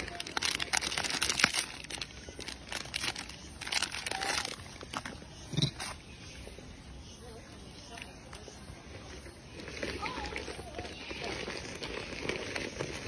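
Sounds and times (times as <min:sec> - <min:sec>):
plastic wrapper crinkling and tearing: 0:00.0 - 0:05.9, 0:09.6 - 0:13.0.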